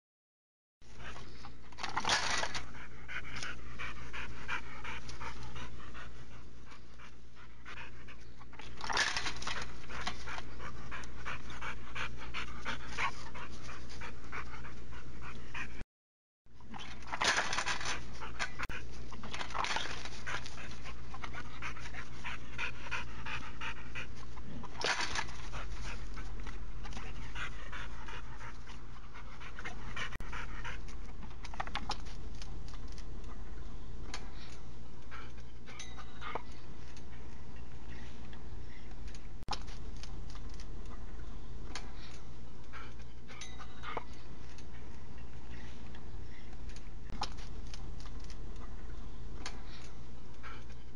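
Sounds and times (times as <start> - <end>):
dog panting hard: 0.9 - 15.8, 17.3 - 31.8, 41.8 - 46.5, 49.4 - 50.9.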